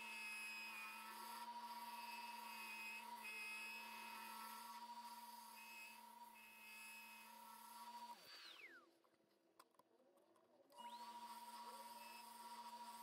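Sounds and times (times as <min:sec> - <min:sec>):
lathe motor whining: 0:00.0 - 0:08.8.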